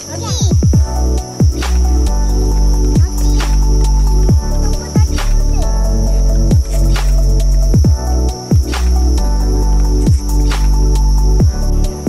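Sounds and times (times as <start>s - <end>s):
electronic music with beat: 0.0s - 12.0s
deep bass hits: 0.5s - 12.0s.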